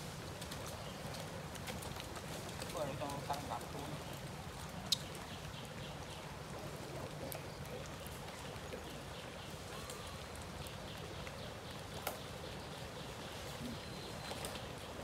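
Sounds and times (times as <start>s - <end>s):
light rain hiss: 0.0s - 15.0s
rain drop ticks: 0.3s - 13.3s.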